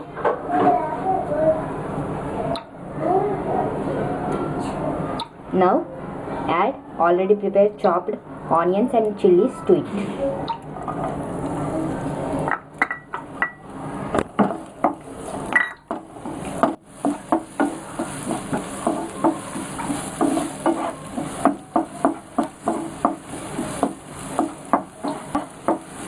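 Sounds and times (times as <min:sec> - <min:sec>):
light sizzle of oil: 0:13.6 - 0:26.0
spatula scraping frying pan: 0:16.2 - 0:26.0.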